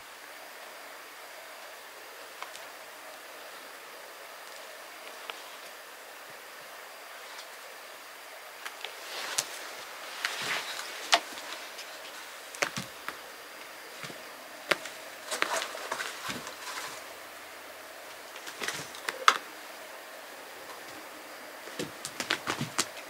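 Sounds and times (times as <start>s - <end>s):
cat rustling on a rug: 8.8s - 13.2s, 13.9s - 17.2s, 21.6s - 23.0s.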